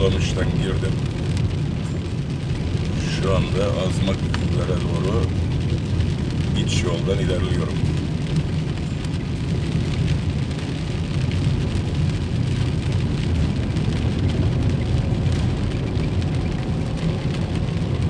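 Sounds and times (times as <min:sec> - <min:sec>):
car engine and tyres rumbling: 0:00.0 - 0:18.0
rain hissing on car: 0:00.0 - 0:18.0.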